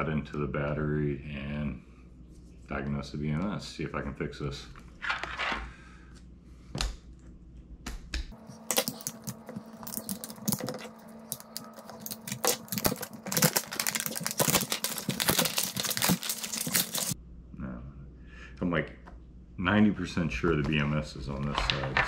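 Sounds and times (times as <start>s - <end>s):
plastic wrap crackling: 8.4s - 17.2s
plastic wrap clicks: 8.6s - 17.2s.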